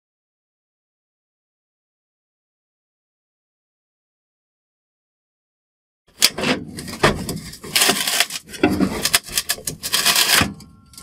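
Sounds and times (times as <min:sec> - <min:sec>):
metal scraping and knocking: 0:06.1 - 0:11.0.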